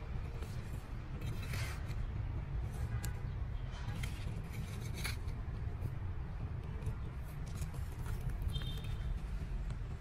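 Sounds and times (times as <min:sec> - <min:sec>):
trowel scraping soil in pot: 0:00.4 - 0:02.1, 0:04.0 - 0:05.4.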